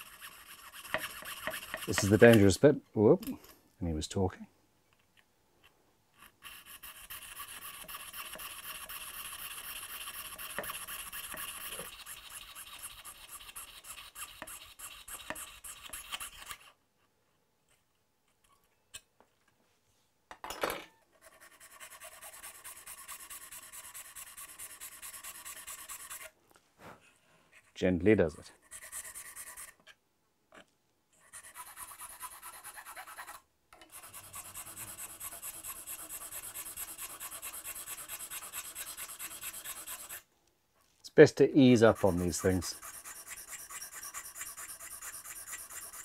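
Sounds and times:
saw rasping through shell: 0.0s - 2.6s, 6.2s - 16.8s, 21.2s - 26.4s, 31.2s - 40.3s, 41.7s - 46.0s.

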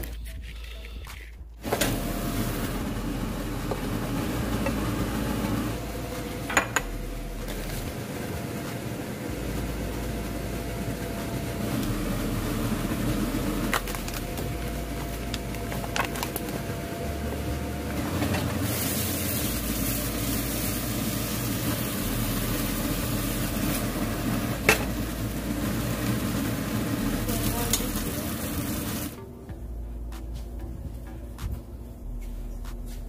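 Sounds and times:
kitchen hum: 0.0s - 33.0s
meat sizzling in a hot pan: 18.6s - 24.3s.

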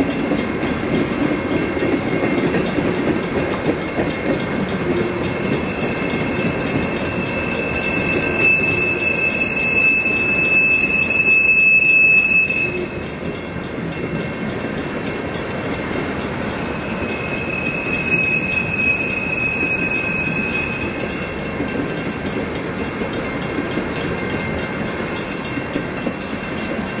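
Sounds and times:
train wheels rumbling on rails: 0.0s - 27.0s
high wheel squeal: 4.8s - 13.1s, 16.7s - 21.1s.

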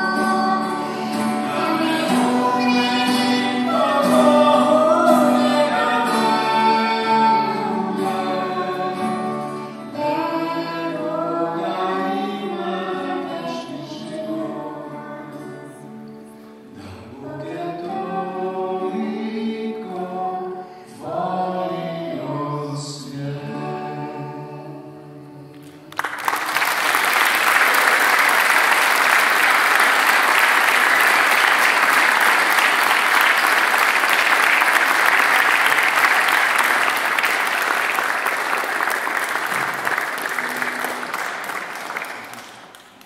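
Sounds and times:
mixed choir singing: 0.0s - 15.8s, 17.1s - 25.6s
audience applause: 25.6s - 43.0s.

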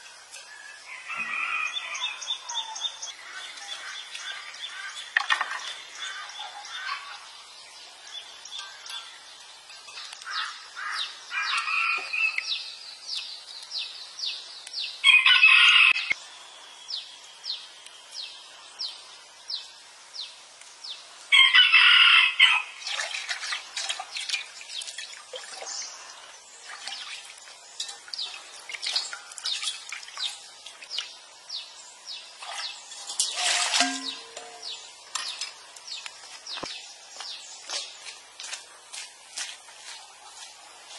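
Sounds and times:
rooster crowing: 0.9s - 2.3s, 15.0s - 16.1s, 21.3s - 22.7s.

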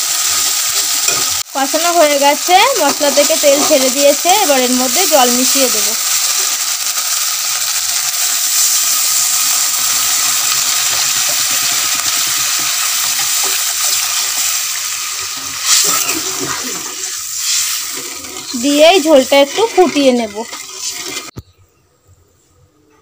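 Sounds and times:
spatula stirring a pan: 2.5s - 7.0s, 7.6s - 21.3s
water pouring into a pan: 15.7s - 21.3s.

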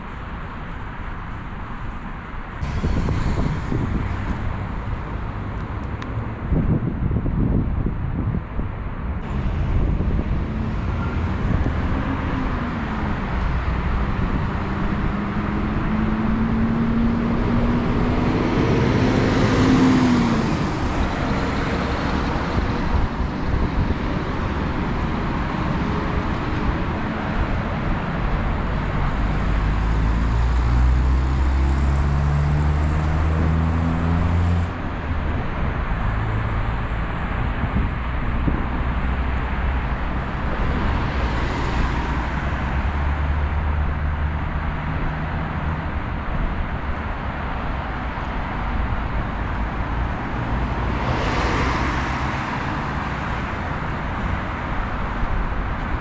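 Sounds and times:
road traffic noise: 0.0s - 56.0s
engine note rising: 9.2s - 22.4s.

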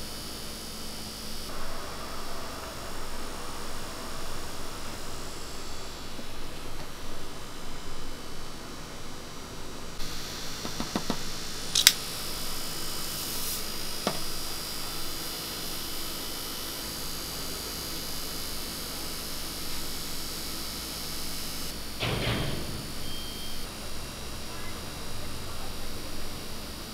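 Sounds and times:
cotton candy machine whirring: 0.0s - 26.9s
sharp clicks: 10.7s - 12.0s.

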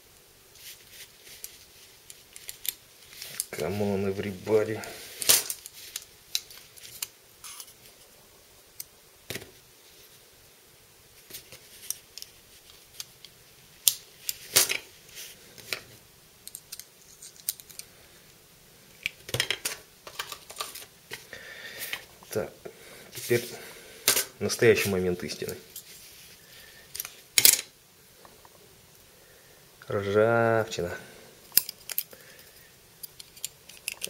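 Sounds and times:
metal knife parts clicking: 31.5s - 32.1s, 33.0s - 34.0s.

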